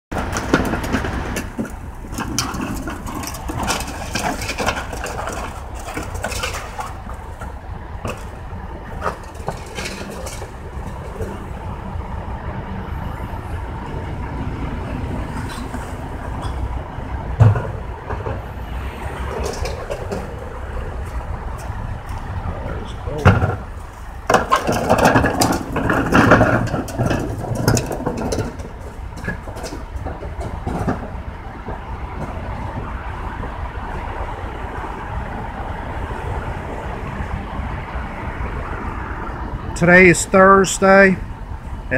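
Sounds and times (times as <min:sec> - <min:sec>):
clattering and knocks from hopper: 0:00.1 - 0:11.5, 0:23.2 - 0:32.9
garbage truck engine idling: 0:00.1 - 0:39.7.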